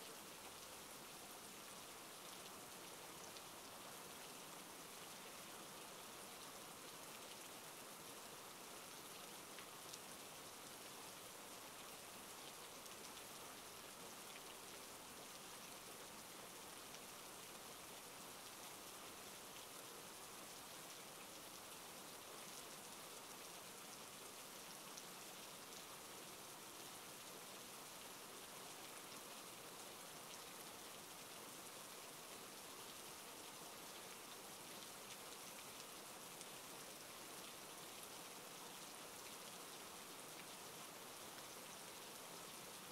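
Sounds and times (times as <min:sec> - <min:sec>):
faint steady rain: 0:00.0 - 0:42.9
light raindrop ticks: 0:09.1 - 0:10.1.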